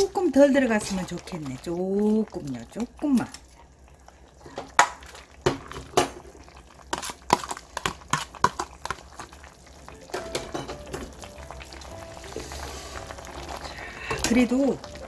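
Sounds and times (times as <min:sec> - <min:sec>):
soup bubbling: 0:00.0 - 0:15.0
utensils clinking against pot: 0:10.1 - 0:11.2, 0:14.1 - 0:14.5.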